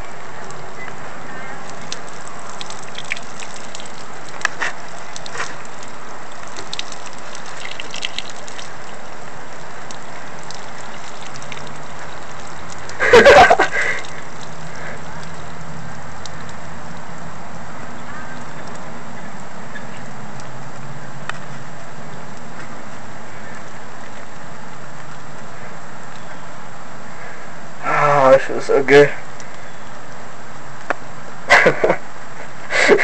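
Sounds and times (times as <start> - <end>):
urine splashing on concrete: 1.3 - 22.5.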